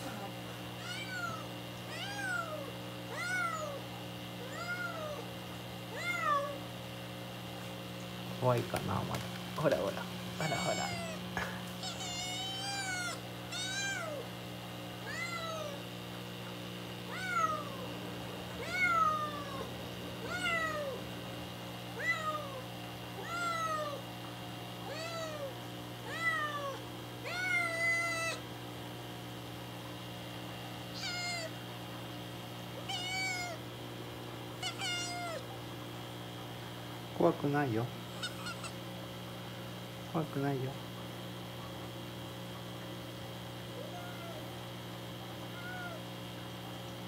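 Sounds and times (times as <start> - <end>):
kitten meowing: 0.8 - 3.8, 4.4 - 5.2, 5.9 - 6.6, 10.4 - 11.2, 11.8 - 14.3, 15.0 - 15.8, 17.1 - 17.8, 18.6 - 21.0, 22.0 - 22.6, 23.2 - 24.0, 24.8 - 28.4, 30.9 - 31.5, 32.8 - 33.6, 34.6 - 35.4, 38.1 - 38.8, 43.8 - 44.4, 45.6 - 46.0.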